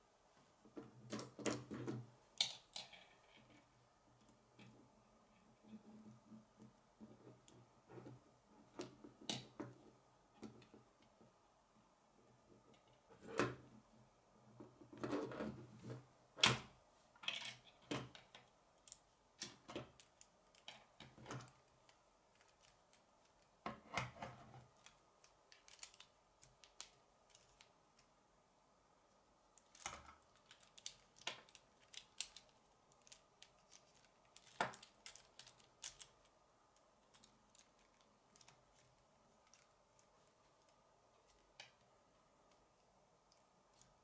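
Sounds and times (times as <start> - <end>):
plastic pieces clicking and snapping: 24.7 - 27.7, 29.6 - 36.3.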